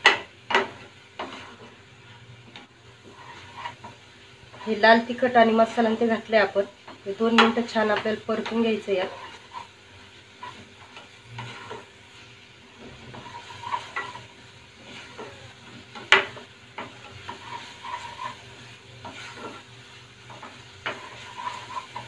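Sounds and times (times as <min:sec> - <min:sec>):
spatula knocking on pan: 0:00.0 - 0:01.4, 0:07.3 - 0:08.6, 0:15.1 - 0:17.4
faint sizzle: 0:00.0 - 0:22.0
wooden spatula scraping a pan: 0:00.0 - 0:22.0.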